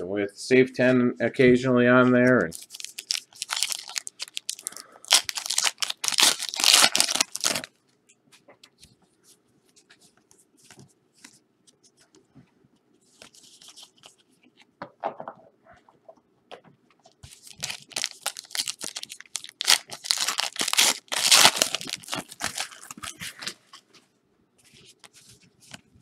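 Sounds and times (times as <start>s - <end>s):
plastic packaging tearing and crinkling: 2.5s - 7.7s, 17.3s - 23.6s.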